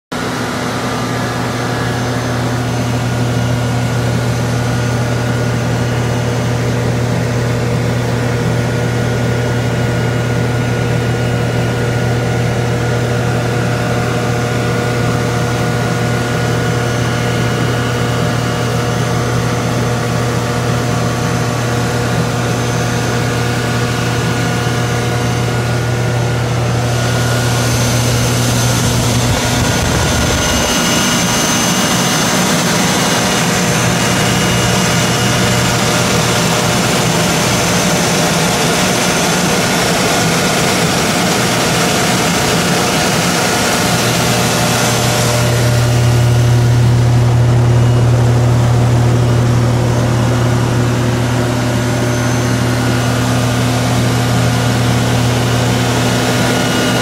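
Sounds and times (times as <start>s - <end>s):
generator engine droning: 0.1s - 57.0s.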